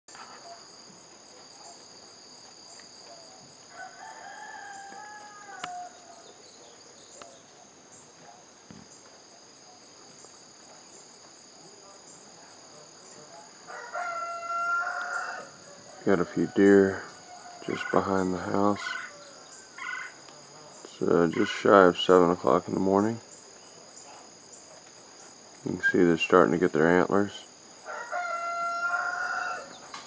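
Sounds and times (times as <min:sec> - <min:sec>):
high pulsing insect chorus: 0:00.1 - 0:30.0
rooster crowing: 0:03.4 - 0:06.4, 0:13.6 - 0:20.3, 0:27.8 - 0:29.9.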